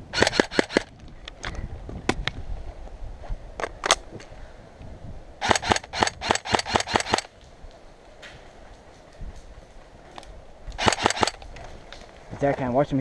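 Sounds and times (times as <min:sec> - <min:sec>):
airsoft rifle shots: 0:00.1 - 0:00.9, 0:05.4 - 0:07.3, 0:10.8 - 0:11.4.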